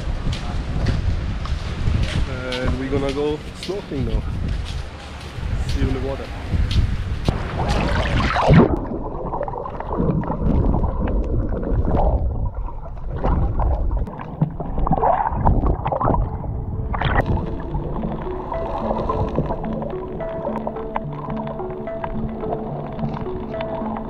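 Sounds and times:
water sloshing and gurgling: 0:06.4 - 0:24.0
underwater bubbling: 0:07.3 - 0:24.0.

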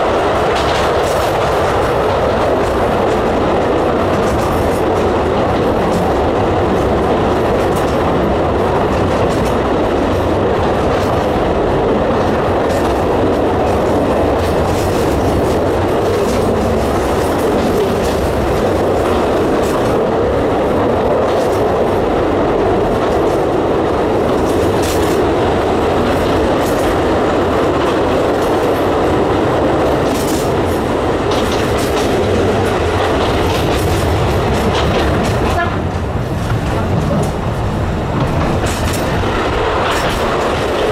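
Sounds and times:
rail joint clicks: 0:00.0 - 0:40.9
train wheels rumbling on rail: 0:00.0 - 0:40.9.

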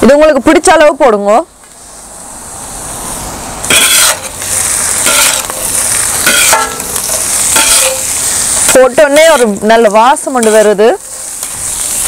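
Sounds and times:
vegetables sizzling in hot oil: 0:02.6 - 0:12.0
metal spatulas clattering on griddle: 0:03.7 - 0:04.3, 0:05.0 - 0:05.5, 0:06.2 - 0:08.1.

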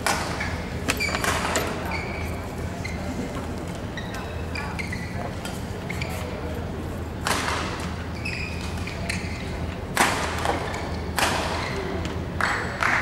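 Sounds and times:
sharp knocks echoing in hall: 0:00.0 - 0:01.9, 0:09.8 - 0:13.0.

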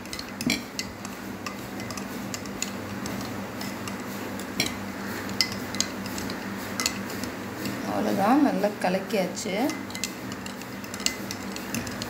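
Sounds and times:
spoon clinking against glass: 0:00.0 - 0:04.0, 0:04.6 - 0:07.8, 0:09.6 - 0:12.0
spoon stirring thick liquid: 0:00.0 - 0:12.0.

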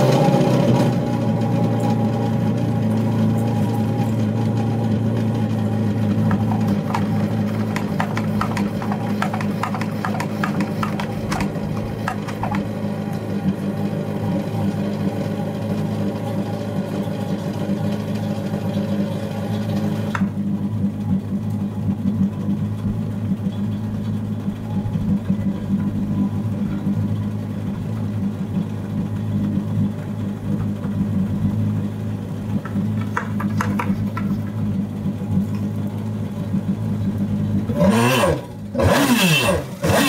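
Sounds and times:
steady mechanical hum: 0:00.0 - 0:40.0
pressure sprayer pump clicking: 0:06.2 - 0:12.7.

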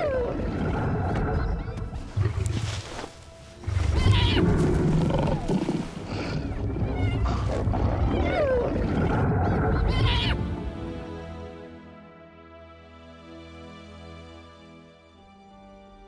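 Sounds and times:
dramatic music: 0:00.1 - 0:16.0
lion growling: 0:03.6 - 0:10.1
hyena yelps and squeals: 0:06.8 - 0:10.4.

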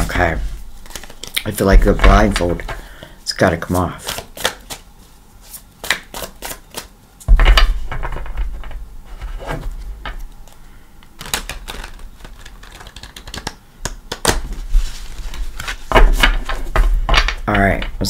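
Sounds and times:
cards shuffling clicks: 0:00.8 - 0:03.1, 0:03.7 - 0:04.8, 0:05.5 - 0:06.9, 0:10.2 - 0:14.6.

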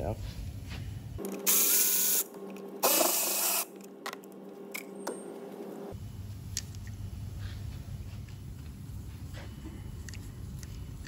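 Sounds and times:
cordless ratchet whirring: 0:02.8 - 0:03.7.

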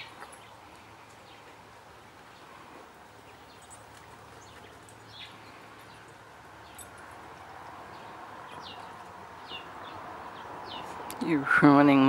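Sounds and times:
bird chirps: 0:07.9 - 0:11.0.

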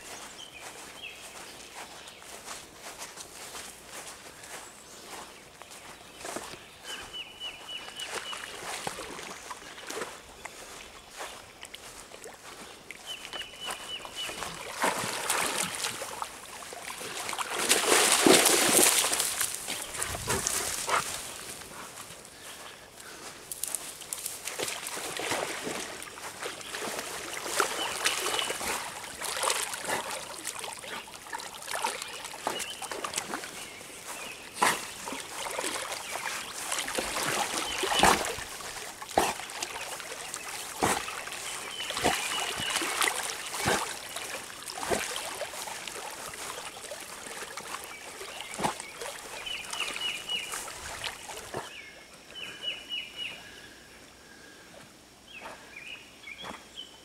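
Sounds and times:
dog splashing and swimming: 0:05.2 - 0:52.7
water sloshing: 0:07.8 - 0:22.6, 0:23.2 - 0:51.8.

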